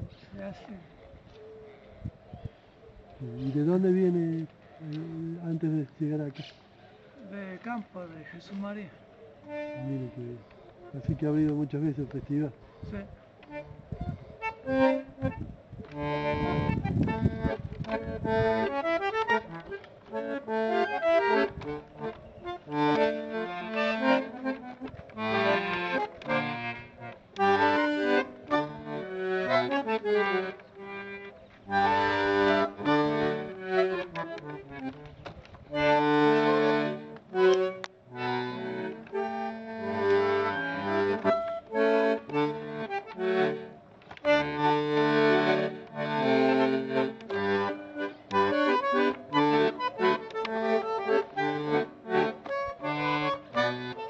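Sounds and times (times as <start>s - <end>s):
bandoneon playing chords and melody: 0.0s - 0.6s, 9.4s - 54.0s.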